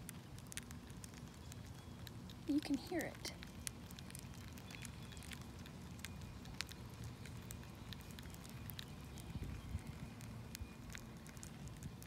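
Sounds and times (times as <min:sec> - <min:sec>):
bees chewing tiny clicks: 0:00.0 - 0:12.0
low steady rumble: 0:00.0 - 0:12.0.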